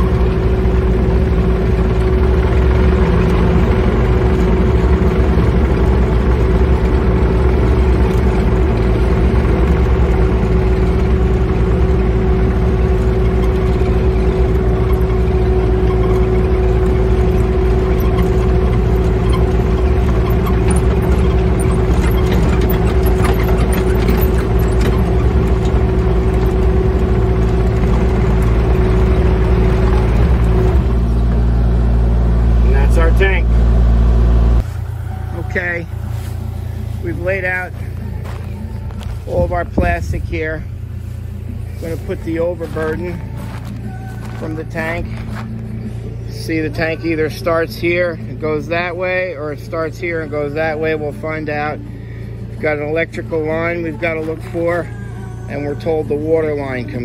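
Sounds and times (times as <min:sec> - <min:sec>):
diesel engine running: 0:00.0 - 0:57.0
steady high tone: 0:34.6 - 0:45.2.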